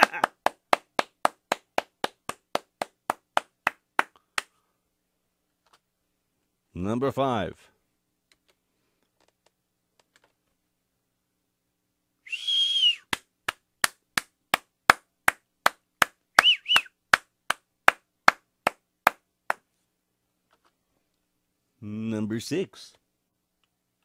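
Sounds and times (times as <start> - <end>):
person clapping: 0.0 - 4.6, 13.0 - 19.6
person whistling: 12.2 - 13.1, 16.4 - 17.0.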